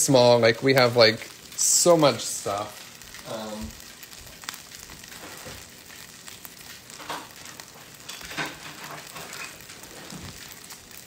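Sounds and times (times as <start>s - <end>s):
butter sizzling in a pan: 0.0s - 11.0s
small pops and crackles: 0.0s - 11.0s.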